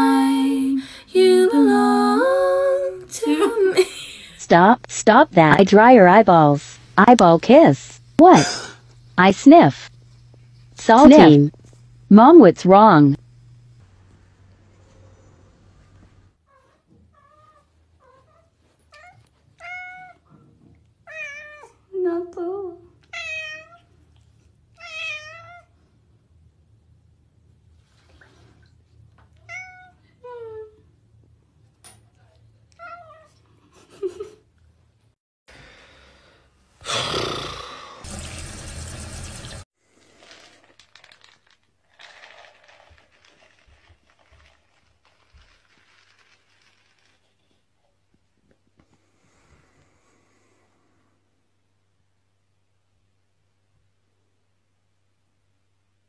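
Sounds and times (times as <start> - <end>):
cat meowing: 29.4 - 30.0.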